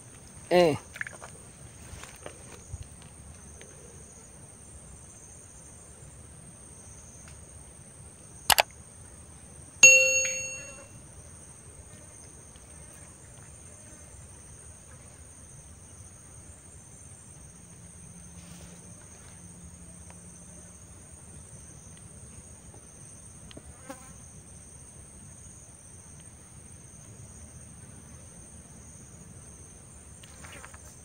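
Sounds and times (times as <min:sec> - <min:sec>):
insects droning: 0:00.0 - 0:31.0
notification bell: 0:09.8 - 0:10.9.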